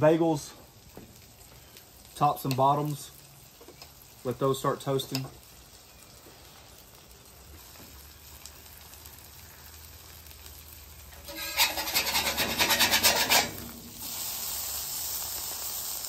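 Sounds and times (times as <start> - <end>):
metal spatula scraping griddle: 11.1 - 14.3.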